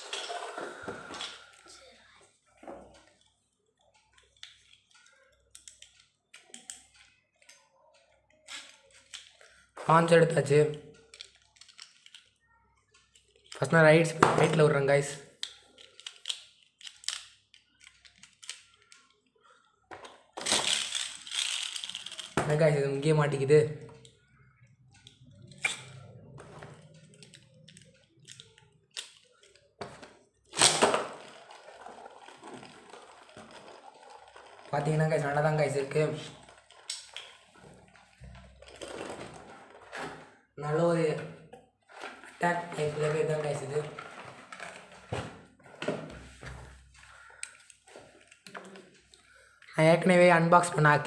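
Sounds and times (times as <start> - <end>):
spinning top whirring: 30.8 - 36.7.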